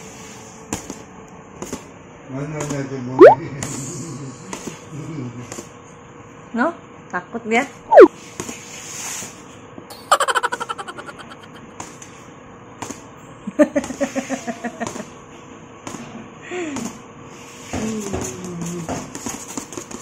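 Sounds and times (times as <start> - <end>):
person laughing: 9.9 - 11.7.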